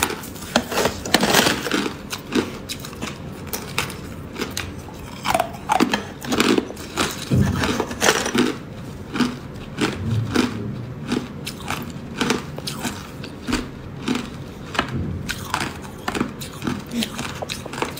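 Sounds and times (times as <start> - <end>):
ice being crunched: 0.0 - 2.2.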